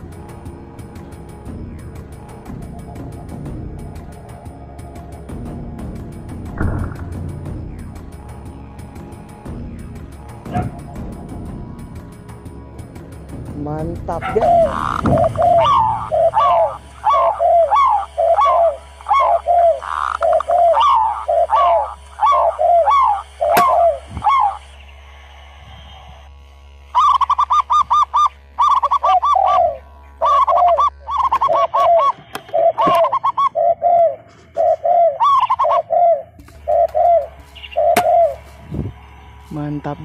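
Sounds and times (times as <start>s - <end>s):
doves cooing: 14.2s - 24.7s, 27.0s - 38.5s.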